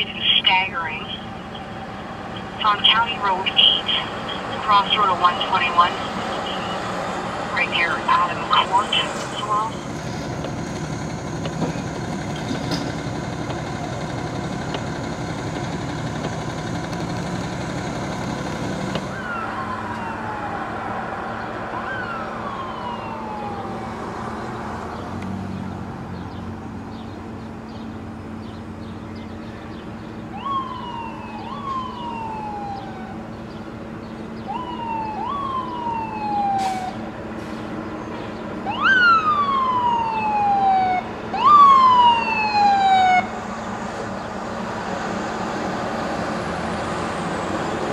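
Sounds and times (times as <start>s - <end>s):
fire truck engine idling: 0.0s - 20.8s
fire truck sirens wailing: 0.0s - 47.9s.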